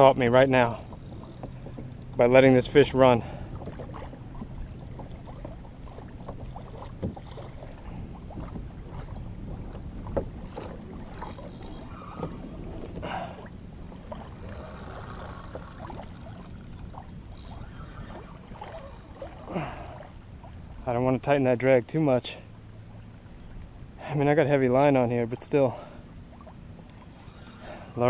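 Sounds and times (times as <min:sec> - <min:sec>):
gear knocking on hull: 0:00.0 - 0:02.8, 0:03.5 - 0:07.7, 0:08.3 - 0:19.5
water lapping against hull: 0:00.0 - 0:28.0.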